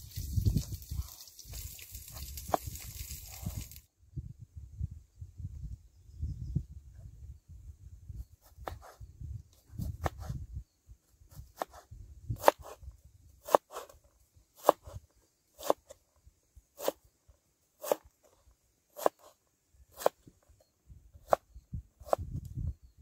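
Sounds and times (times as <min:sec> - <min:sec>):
knife chopping on wooden board: 0:12.4 - 0:12.8, 0:13.4 - 0:13.9, 0:14.6 - 0:15.0, 0:17.8 - 0:18.1, 0:19.0 - 0:19.3.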